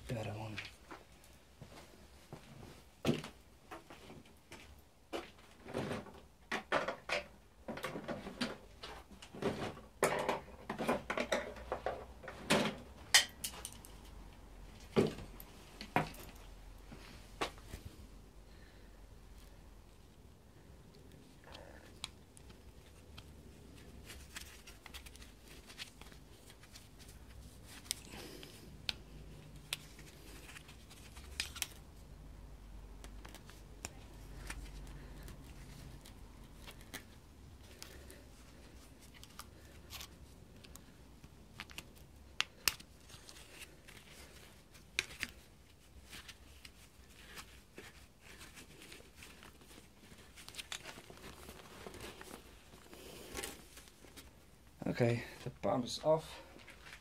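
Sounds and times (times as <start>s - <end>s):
gloved hands handling rubber hose: 0.1s - 57.0s.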